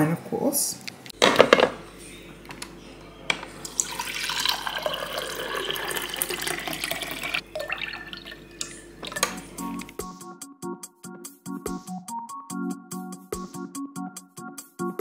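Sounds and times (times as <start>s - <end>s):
water stream into a glass: 3.7s - 9.2s.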